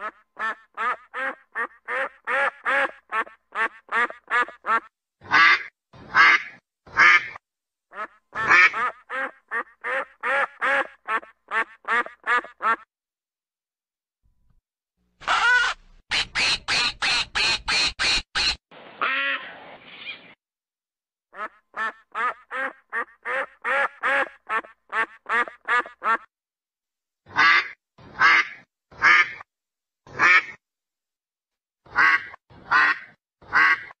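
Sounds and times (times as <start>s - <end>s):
ducks quacking: 0.0s - 12.9s, 31.9s - 34.0s.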